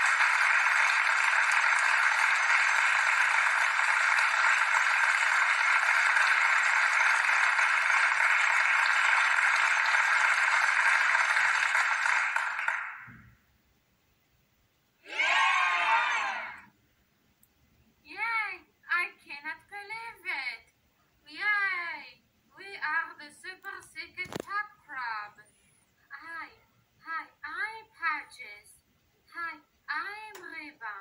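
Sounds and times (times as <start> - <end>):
crowd applause: 0.0 - 13.2, 15.1 - 16.6.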